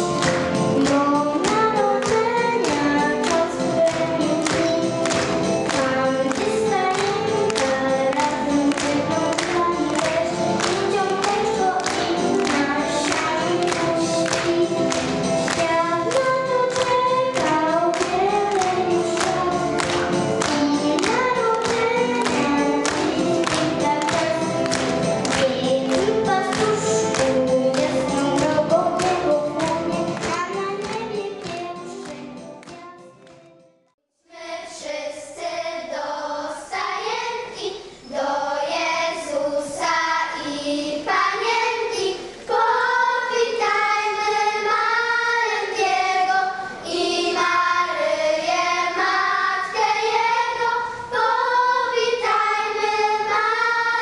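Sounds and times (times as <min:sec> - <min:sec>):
children's choir singing a carol: 0:00.0 - 0:33.4, 0:34.3 - 0:54.0
music with a steady beat: 0:00.0 - 0:33.6.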